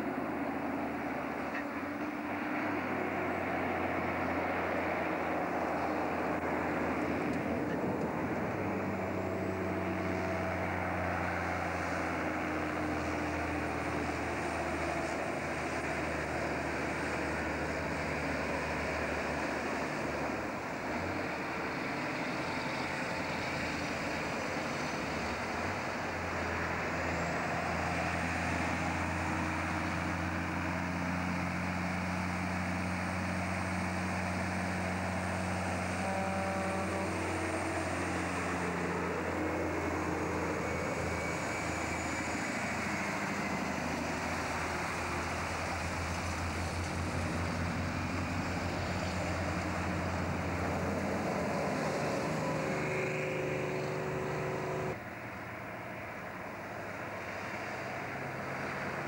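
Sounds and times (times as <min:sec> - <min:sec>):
heavy diesel truck engines: 0:00.0 - 0:59.0
truck passing by: 0:00.0 - 0:59.0.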